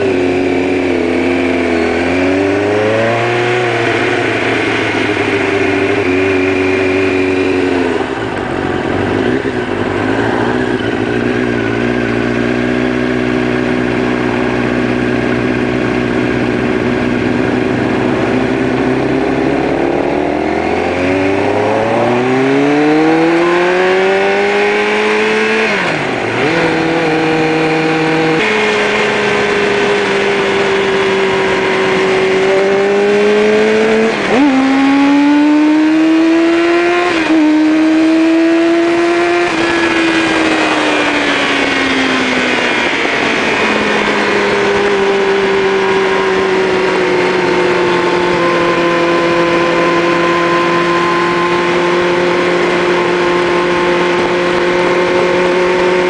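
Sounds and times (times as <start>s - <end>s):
motorcycle engine accelerating: 0.0s - 56.0s
wind rush: 39.0s - 56.0s.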